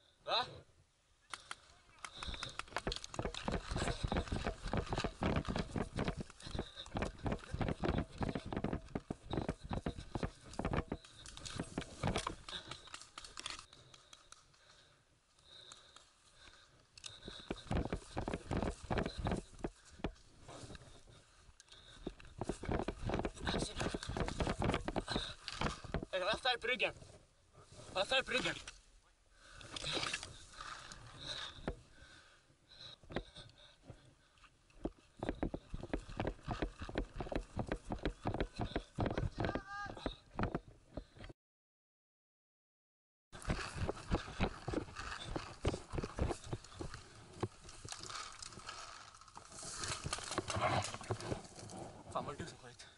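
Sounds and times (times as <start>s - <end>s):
twigs crackling: 1.2s - 41.2s, 43.4s - 51.9s
footsteps running on grass: 2.3s - 12.8s, 35.3s - 40.5s, 43.4s - 47.8s
footsteps through tall grass: 43.4s - 51.6s.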